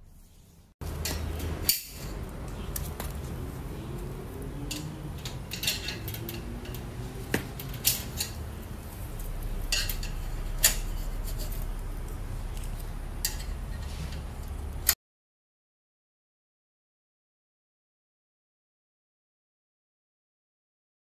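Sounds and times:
low steady hum: 0.0 - 15.0
metal rack clinking: 0.8 - 3.1, 4.6 - 11.9, 12.6 - 15.0.

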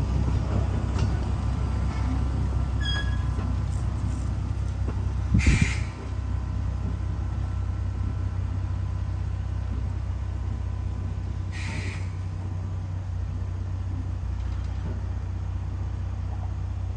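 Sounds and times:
train rumbling on track: 0.0 - 16.9
air hiss: 5.4 - 6.0.

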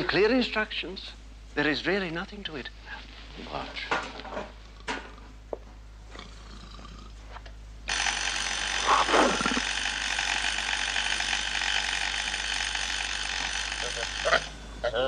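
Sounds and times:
electric alarm buzzer: 7.9 - 15.0.

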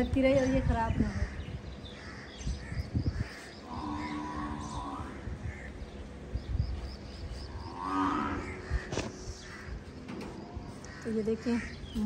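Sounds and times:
birds chirping: 0.0 - 12.0
wind rumbling on microphone: 0.0 - 12.0
cow lowing: 7.5 - 8.7.

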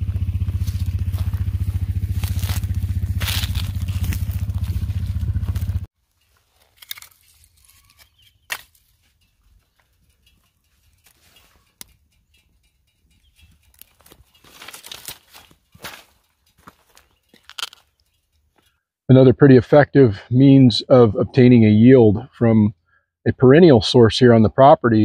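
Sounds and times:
small engine running: 0.0 - 7.9
footsteps on dry leaves: 0.0 - 10.0, 13.5 - 17.9
sharp snaps of twigs: 1.9 - 4.6, 6.7 - 8.9.

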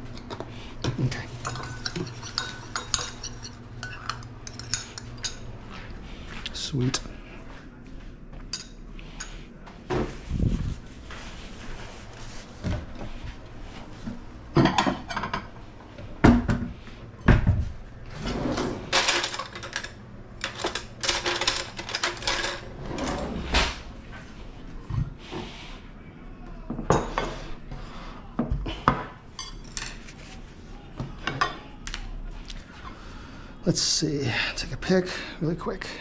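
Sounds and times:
dishes knocking and clinking: 14.5 - 15.5, 16.2 - 17.7, 26.7 - 27.5.

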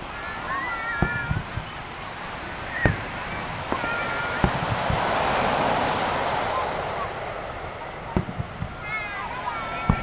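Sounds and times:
fireworks booming: 0.0 - 10.0
surf rushing: 0.0 - 10.0.

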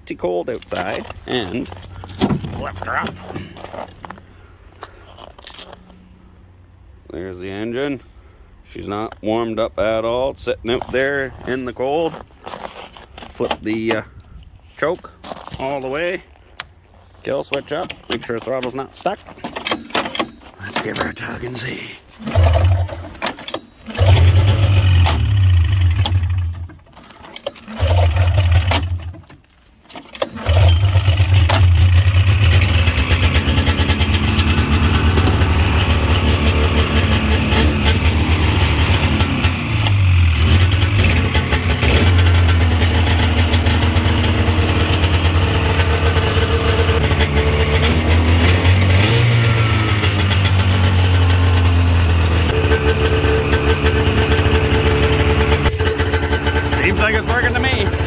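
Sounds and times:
snowmobile engine starting and revving: 20.8 - 29.2, 30.2 - 58.0.

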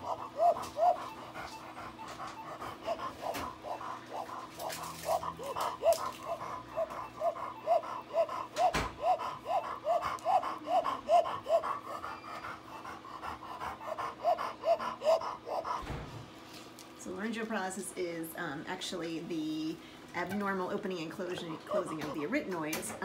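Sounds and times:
dog panting with whistling breath: 0.0 - 16.1, 21.2 - 22.7.

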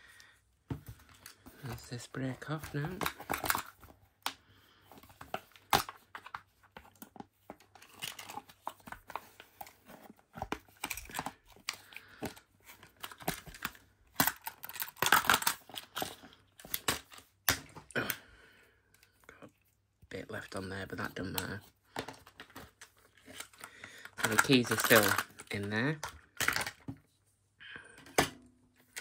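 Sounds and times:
plastic packaging crinkling and tearing: 5.2 - 18.1, 22.2 - 26.8.

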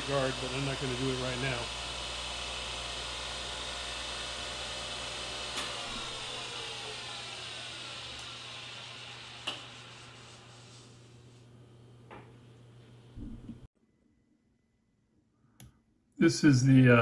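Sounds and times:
grinder motor whining: 0.0 - 10.8.

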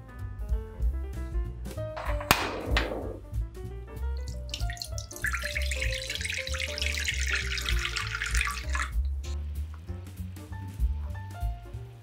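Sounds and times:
background music: 0.0 - 12.0
water pouring into frying pan: 4.2 - 9.2.

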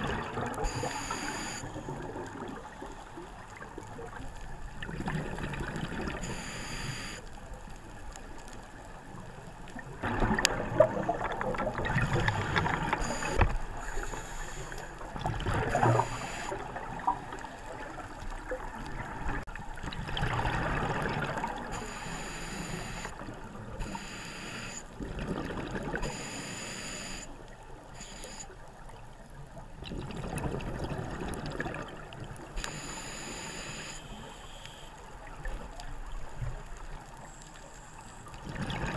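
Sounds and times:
exhaled bubbles underwater: 0.0 - 6.7, 9.1 - 24.0, 24.9 - 26.3, 28.9 - 33.4, 38.2 - 38.9
steady watery hiss: 0.0 - 18.3, 21.0 - 25.0, 26.0 - 28.9, 32.2 - 38.5
diver breathing through regulator: 11.9 - 15.0, 21.7 - 23.1, 23.8 - 24.9, 26.1 - 27.3, 32.6 - 35.0.

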